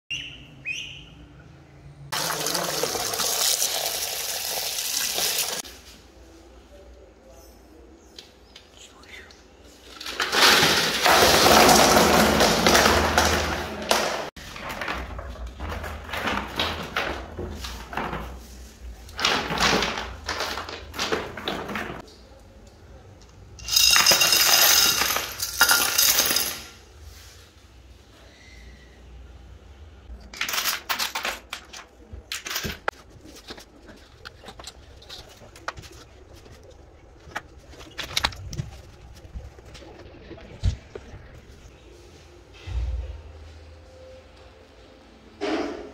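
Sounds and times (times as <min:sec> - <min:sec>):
plastic plants rustling: 0:09.7 - 0:22.1, 0:32.9 - 0:41.7
pebbles clattering onto plastic: 0:09.9 - 0:18.3, 0:19.1 - 0:22.0, 0:23.6 - 0:26.6.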